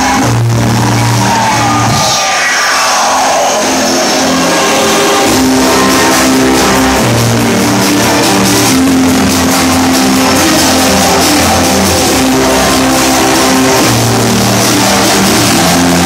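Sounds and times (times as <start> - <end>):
synth bass notes: 0.0 - 16.0
ticking dance beat: 4.9 - 16.0.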